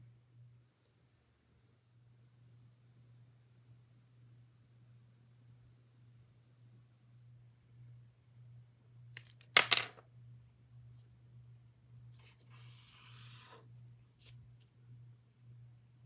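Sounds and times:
pen scratching on paper: 0:12.2 - 0:13.6.

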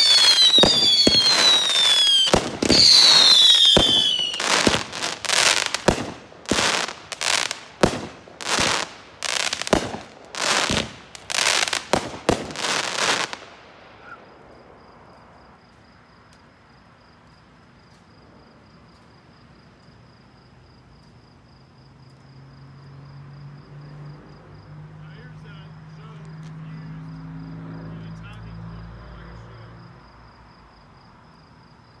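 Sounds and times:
fireworks bursting: 0:00.0 - 0:15.2.

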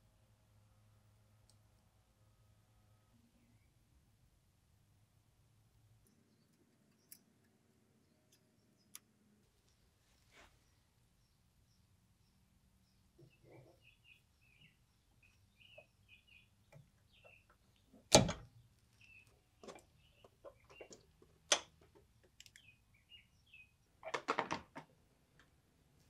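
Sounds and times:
metal clunks and clicks: 0:18.1 - 0:18.5.

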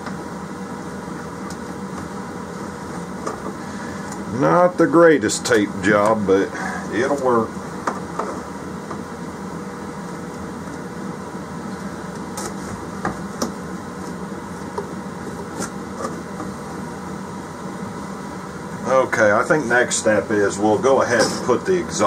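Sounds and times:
low fan hum: 0:00.0 - 0:22.0.

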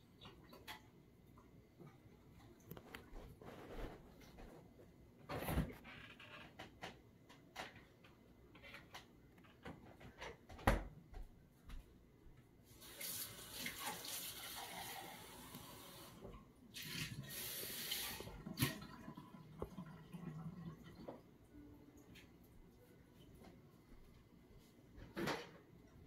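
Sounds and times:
water running: 0:12.7 - 0:22.2.

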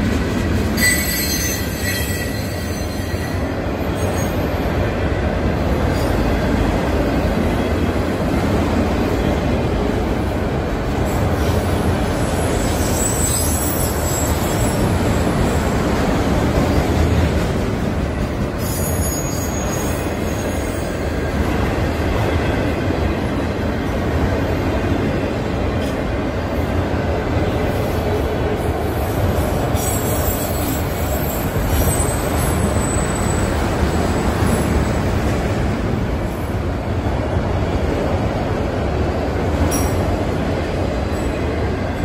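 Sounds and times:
train wheels rumbling on rails: 0:00.0 - 0:42.0
high-pitched wheel squeal: 0:00.8 - 0:04.4, 0:12.3 - 0:15.0, 0:18.6 - 0:20.9.

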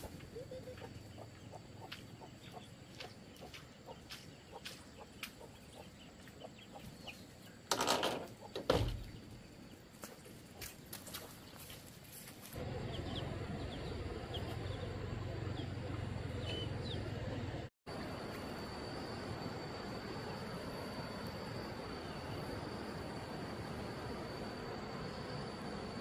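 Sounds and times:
chickens clucking: 0:00.0 - 0:07.2
chicks peeping: 0:00.1 - 0:07.4, 0:12.8 - 0:15.8.

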